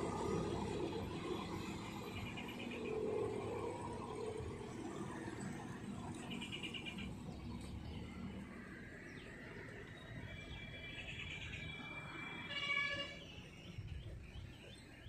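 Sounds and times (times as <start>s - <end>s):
small car driving past: 0.0s - 13.3s
bird chirping trill: 9.0s - 15.0s.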